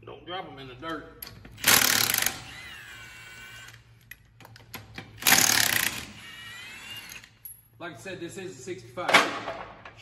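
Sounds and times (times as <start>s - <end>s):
impact wrench motor whine: 1.5s - 3.9s, 5.2s - 7.4s.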